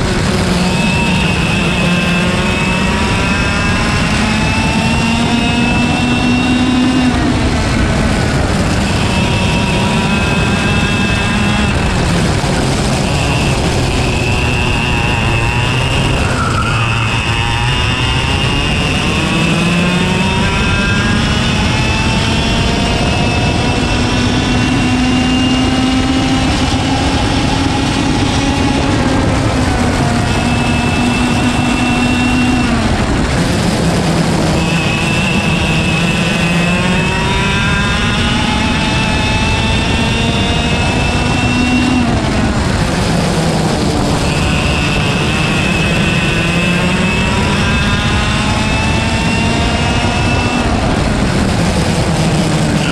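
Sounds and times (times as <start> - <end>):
kart engine revving: 0.0 - 52.9
wind rush: 0.0 - 52.9.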